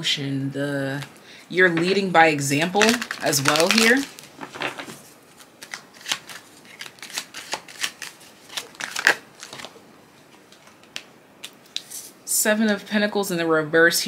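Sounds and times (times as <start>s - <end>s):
cards being shuffled: 1.7s - 9.8s.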